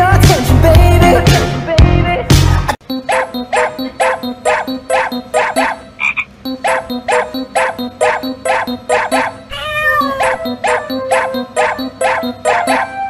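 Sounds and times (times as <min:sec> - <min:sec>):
music with plucked notes: 0:06.4 - 0:13.0.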